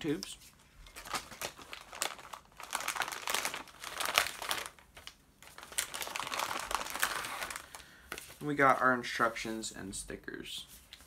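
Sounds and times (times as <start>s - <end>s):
packaging crinkling: 0.8s - 8.5s.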